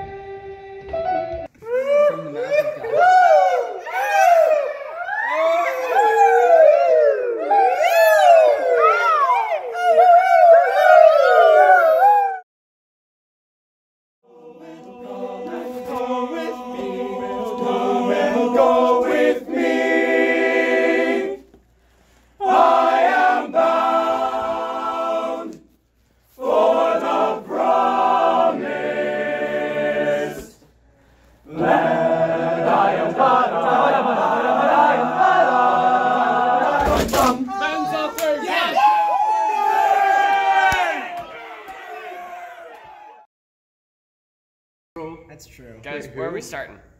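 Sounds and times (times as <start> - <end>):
men's choir singing a cappella: 14.2 - 21.5, 22.4 - 25.6, 26.4 - 30.6, 31.4 - 37.5.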